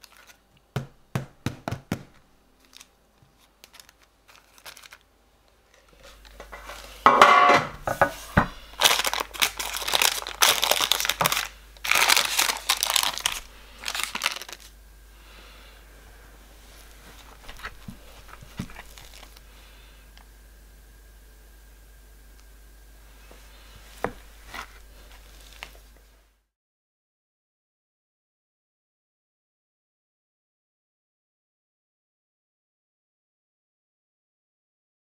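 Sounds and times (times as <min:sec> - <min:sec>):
baking paper crinkling: 0:00.0 - 0:00.6, 0:02.6 - 0:07.1, 0:07.8 - 0:14.8, 0:16.6 - 0:19.5, 0:23.2 - 0:26.1.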